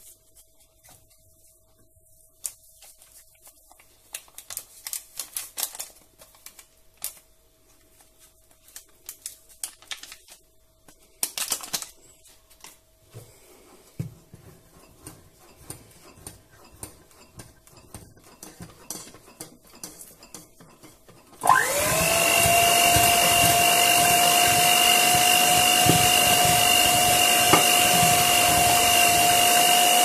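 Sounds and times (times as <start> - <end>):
paper sachets tearing and crinkling: 2.4 - 12.8.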